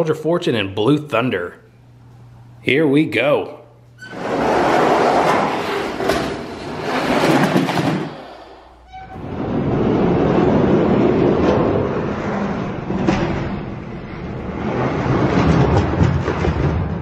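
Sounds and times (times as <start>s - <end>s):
toy trucks rolling on plastic track: 4.2s - 8.4s.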